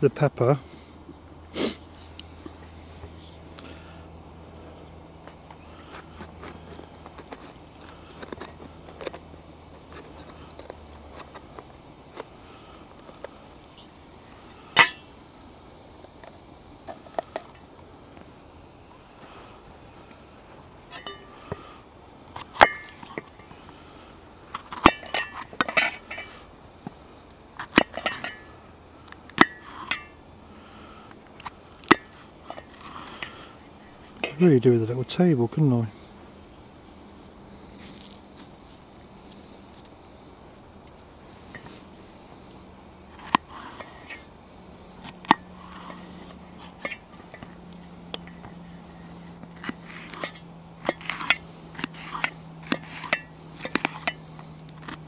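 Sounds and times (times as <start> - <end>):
metallic taps with ring: 20.9 - 21.3.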